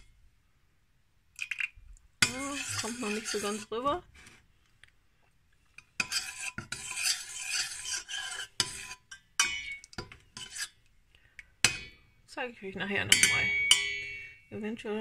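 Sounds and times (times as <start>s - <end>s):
metal spoon stirring in pot: 1.4s - 4.8s, 5.6s - 12.0s, 13.0s - 14.5s.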